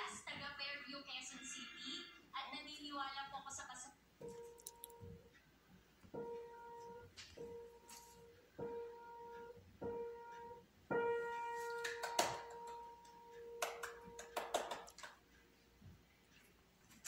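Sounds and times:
piano note struck: 0:08.6 - 0:14.1.

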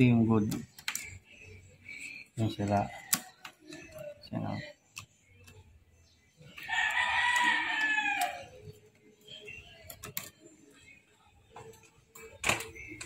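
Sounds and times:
rooster crowing: 0:06.7 - 0:08.5.

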